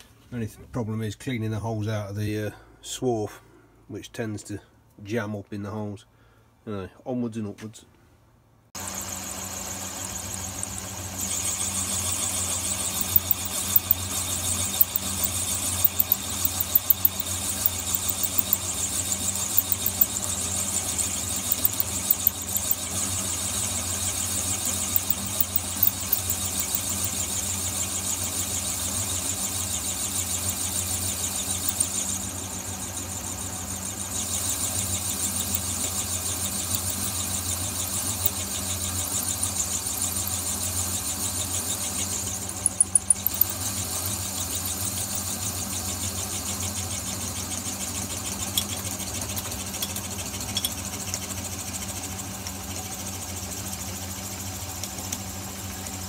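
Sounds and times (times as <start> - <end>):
lathe motor hum: 8.8 - 32.5, 33.7 - 49.9
high squeal of drilling steel: 10.4 - 23.2
sharp ticks: 11.8 - 20.3, 21.1 - 22.9, 24.4 - 27.2, 34.5 - 35.8, 36.4 - 38.4, 42.4 - 43.6.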